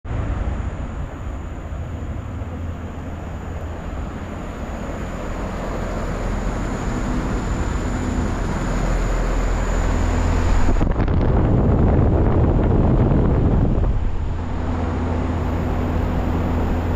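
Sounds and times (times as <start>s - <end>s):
condenser fan rushing: 0.0s - 16.9s
faint high whine: 0.1s - 16.9s
low hum: 0.1s - 16.9s.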